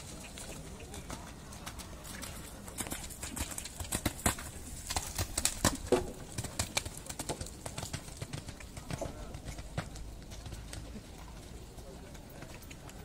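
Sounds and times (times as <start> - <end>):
hoofbeats on sand: 0.0 - 13.0.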